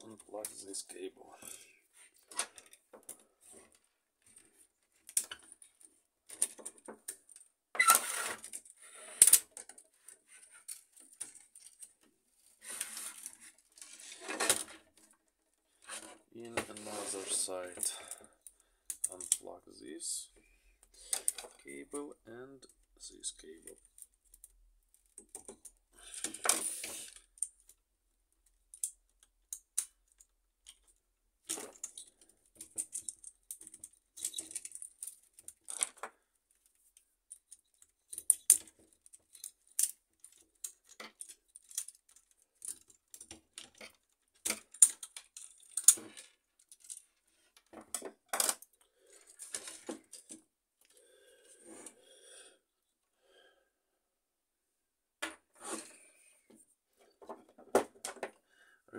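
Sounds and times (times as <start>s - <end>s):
plastic connectors clicking and rattling: 17.8s - 19.4s, 23.6s - 50.9s.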